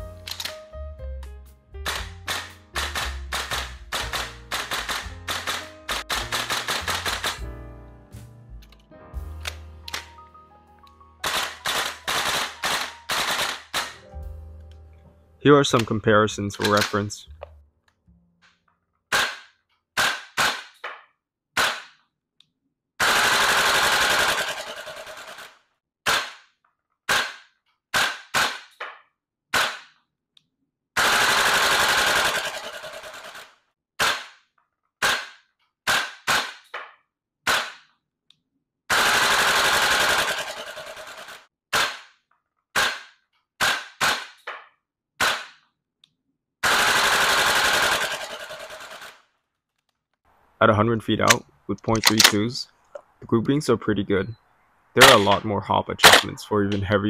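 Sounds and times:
full-auto airsoft fire: 1.8 - 7.5, 11.2 - 14.0, 19.1 - 20.8, 21.6 - 22.0, 23.0 - 25.5, 26.1 - 26.4, 27.1 - 28.8, 29.5 - 29.9, 31.0 - 34.4, 35.0 - 36.7, 37.5 - 37.8, 38.9 - 42.1, 42.8 - 44.4, 45.2 - 45.6, 46.6 - 49.2, 56.0 - 56.3
airsoft rifle single shots: 19.1 - 21.0, 21.6 - 22.0, 26.1 - 26.4, 27.1 - 28.9, 29.5 - 29.9, 34.0 - 34.4, 35.0 - 36.9, 37.5 - 37.9, 41.7 - 42.1, 42.8 - 44.6, 45.2 - 45.6, 56.0 - 56.3.

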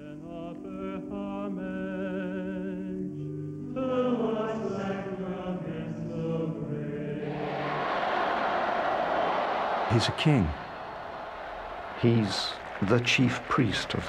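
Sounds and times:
chanted singing: 3.8 - 14.0.

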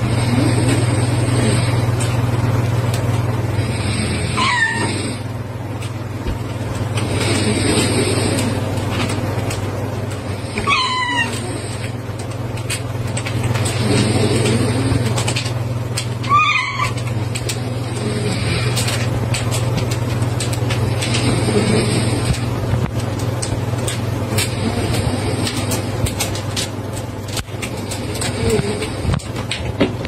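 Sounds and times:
steady low hum: 0.0 - 30.0
cat meowing: 4.4 - 5.1, 10.6 - 11.4.

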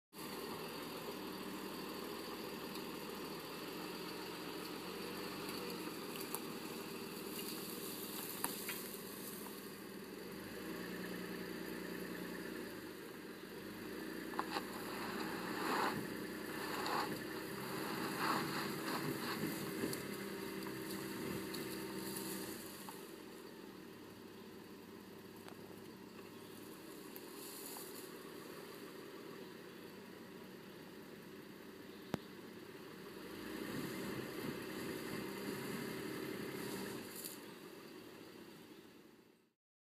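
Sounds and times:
car engine at low speed: 0.1 - 39.6
tyres crackling over leaves and sticks: 0.2 - 10.0, 14.2 - 23.8, 25.3 - 29.5, 33.0 - 37.9.

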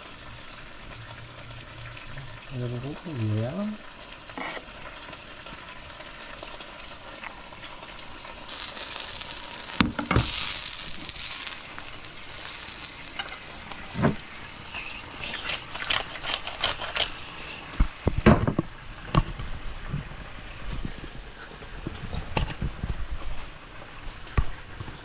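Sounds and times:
food sizzling in a pan: 0.0 - 18.6.

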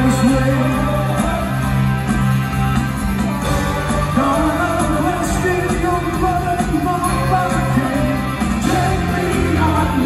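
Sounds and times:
rock band playing live: 0.0 - 10.0
person singing: 3.4 - 10.0.

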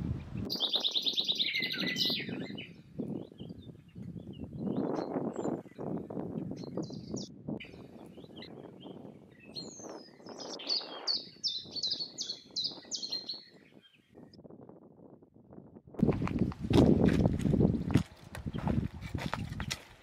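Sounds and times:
bird chirping and singing: 0.4 - 14.4
footsteps crunching on stony ground: 16.0 - 20.0.

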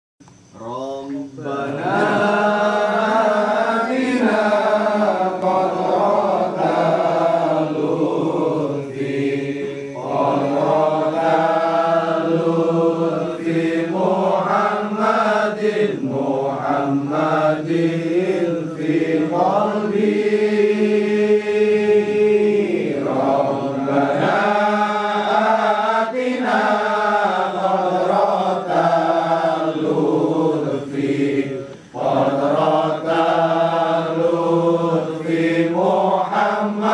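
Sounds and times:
voices chanting melodically: 0.2 - 36.9.

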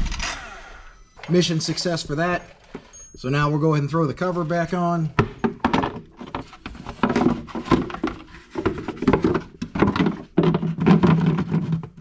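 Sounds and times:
plastic cover knocking and scraping: 5.1 - 12.0.

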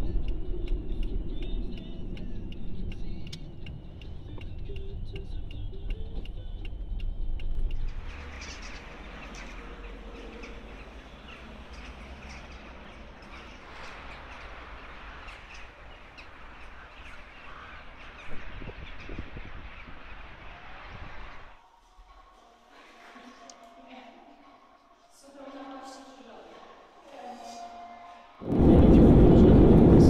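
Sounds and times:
car road rumble: 0.0 - 21.6, 28.4 - 30.0
steady outdoor hiss: 0.0 - 30.0
faint bird chirps: 7.8 - 21.5.

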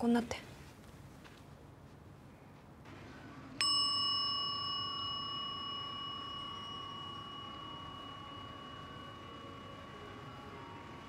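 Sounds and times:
altar bowl bell ringing: 3.6 - 11.0.

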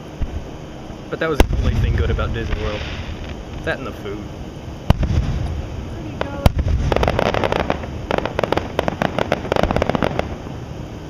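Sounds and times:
firework crackling pops: 1.4 - 3.8, 4.9 - 10.6.

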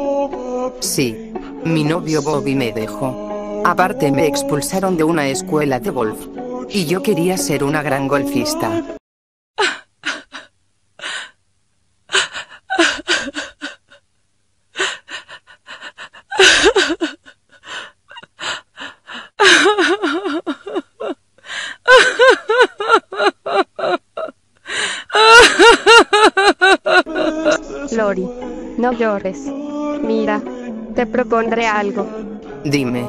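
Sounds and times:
young woman sobbing: 9.6 - 11.4, 12.1 - 14.0, 14.7 - 28.5.

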